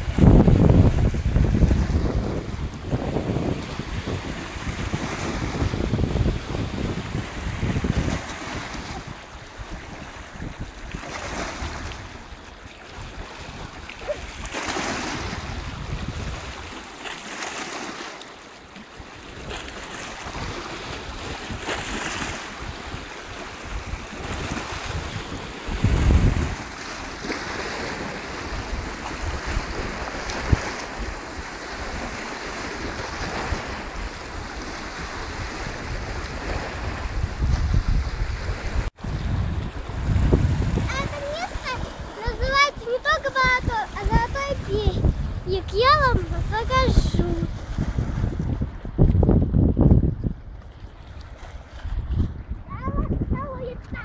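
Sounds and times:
wind buffeting microphone: 0.0 - 16.9, 19.0 - 54.0
small waves splashing against rocks: 3.2 - 38.9.

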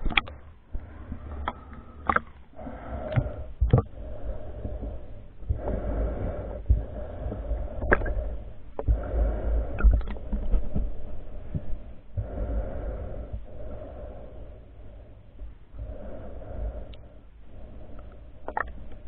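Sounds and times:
clicks and knocks against camera: 0.0 - 0.4, 1.4 - 2.4, 3.1 - 3.9, 9.8 - 10.9
low rumble of moving water: 0.0 - 19.0
swimmer breathing underwater: 0.8 - 10.4, 11.3 - 18.6.

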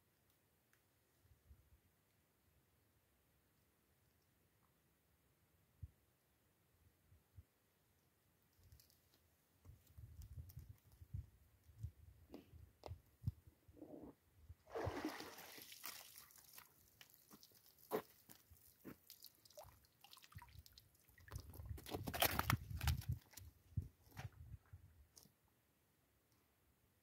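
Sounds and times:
water pouring and splashing: 14.7 - 22.5
water dripping: 14.8 - 21.6.

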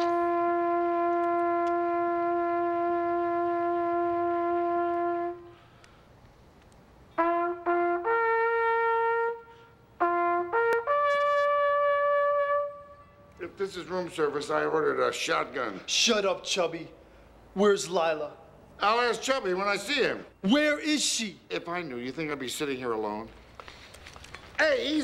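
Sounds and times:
solo trumpet playing long tones: 0.0 - 5.8, 7.1 - 13.4.

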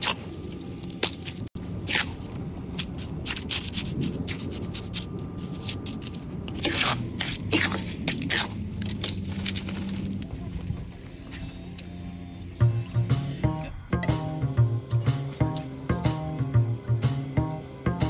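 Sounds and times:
trowel scraping soil: 0.0 - 10.2.

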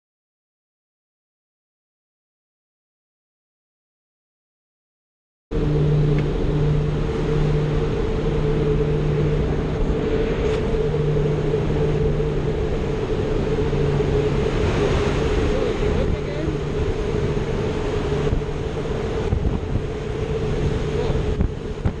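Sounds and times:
airplane engines droning in cabin: 5.5 - 22.0.

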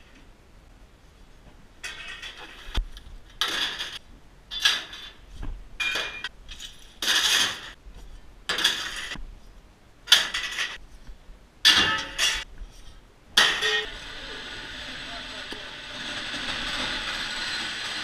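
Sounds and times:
metal pipes clinking and rattling: 1.8 - 7.8, 8.5 - 9.2, 10.1 - 10.8, 11.6 - 12.5, 13.4 - 14.0.

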